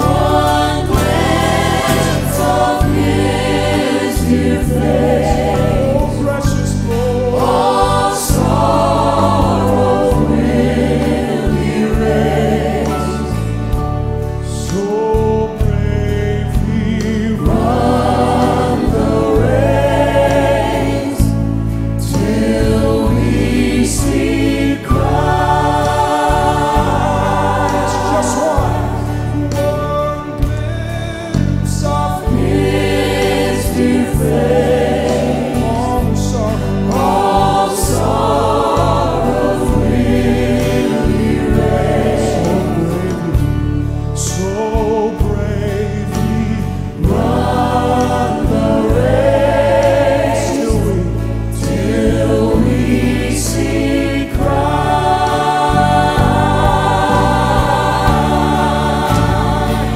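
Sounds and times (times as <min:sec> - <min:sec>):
choir singing: 0:00.0 - 0:59.9
instrumental backing: 0:00.0 - 0:59.9
man singing gospel: 0:05.2 - 0:08.0, 0:14.5 - 0:19.5, 0:26.8 - 0:32.5, 0:35.2 - 0:37.5, 0:41.9 - 0:52.7.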